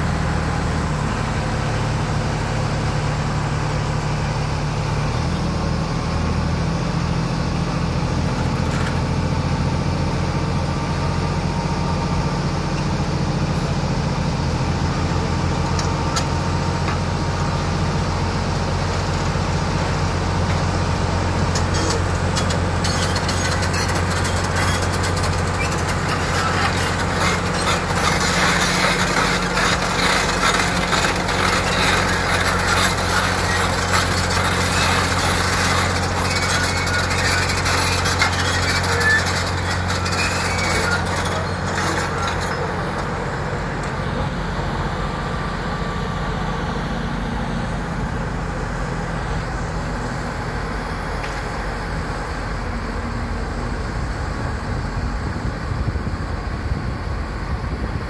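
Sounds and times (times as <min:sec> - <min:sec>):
excavator diesel engine running: 0:00.0 - 0:58.0
steel tracks clattering: 0:21.6 - 0:44.2.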